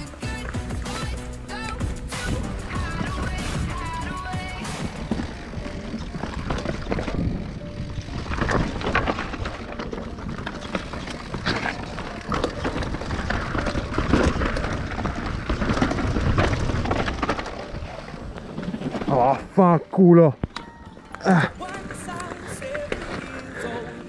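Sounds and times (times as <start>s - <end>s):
bike clattering: 0.0s - 24.0s
tyres crunching over stones: 0.0s - 24.0s
wind rumbling on microphone: 2.3s - 19.5s.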